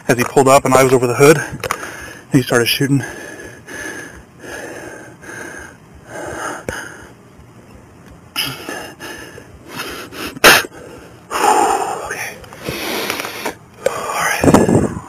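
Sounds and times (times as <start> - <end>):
breath-like puffs on microphone: 12.6 - 15.0.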